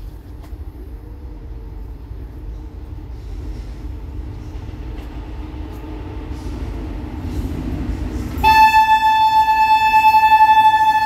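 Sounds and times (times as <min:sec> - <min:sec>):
freight train rumble: 0:00.0 - 0:11.0
locomotive horn blast: 0:08.4 - 0:11.0.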